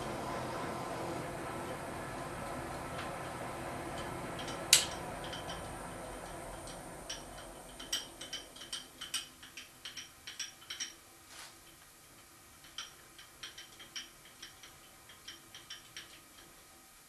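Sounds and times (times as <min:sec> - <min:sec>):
metallic ticks of steel chips: 0:03.9 - 0:11.0, 0:11.6 - 0:16.7.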